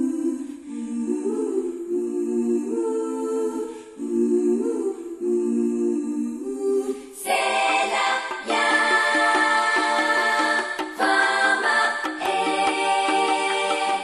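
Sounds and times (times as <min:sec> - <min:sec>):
fuller brighter musical arrangement: 0:07.3 - 0:14.0.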